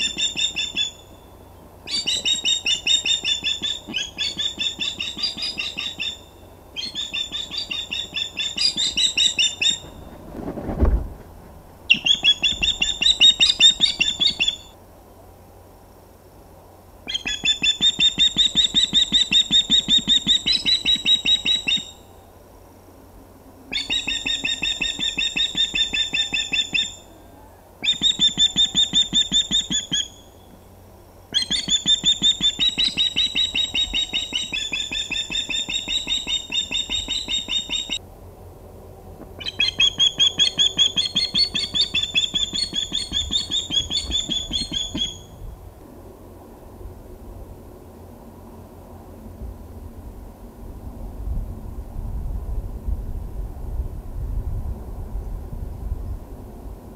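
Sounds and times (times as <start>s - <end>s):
osprey alarm calls: 0.0s - 10.0s, 11.9s - 14.8s, 17.1s - 22.1s, 23.7s - 27.1s, 27.8s - 30.5s, 31.3s - 38.0s, 39.4s - 45.3s.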